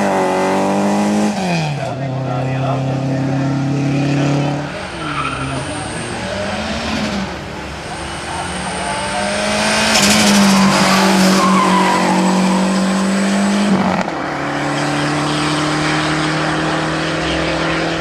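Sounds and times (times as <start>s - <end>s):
rally car engine under load: 0.0s - 18.0s
tyres squealing: 4.6s - 6.8s, 7.8s - 13.6s.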